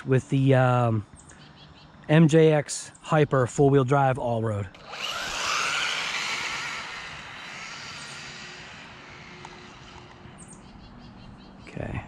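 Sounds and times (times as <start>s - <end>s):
toy truck motor whine: 4.8s - 10.6s.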